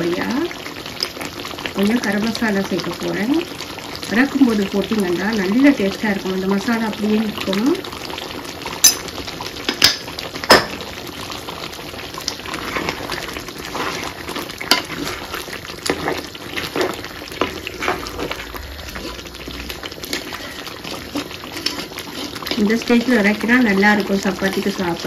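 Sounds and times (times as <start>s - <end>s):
thick curry bubbling in a pot: 0.0s - 25.0s
ladle clinking against pot: 8.8s - 9.1s
wet stirring strokes: 12.2s - 24.8s.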